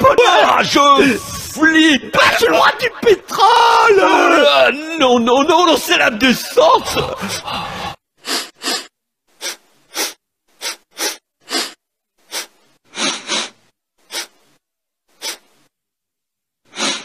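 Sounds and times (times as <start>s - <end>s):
person sniffing sharply: 8.2s - 15.7s, 16.7s - 17.0s.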